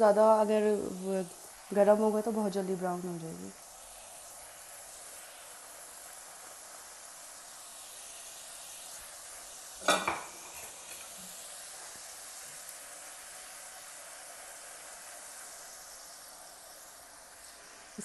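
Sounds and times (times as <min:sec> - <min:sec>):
oil sizzling: 0:00.0 - 0:18.0
metal turner clinking in pan: 0:09.8 - 0:10.3.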